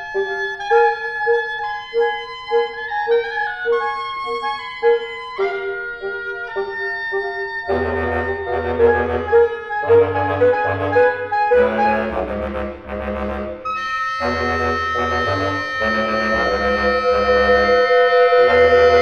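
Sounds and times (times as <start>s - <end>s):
bass clarinet: 0.0s - 19.0s
bassoon: 0.0s - 19.0s
clarinet: 0.0s - 19.0s
oboe: 0.0s - 19.0s
saxophone: 0.0s - 19.0s.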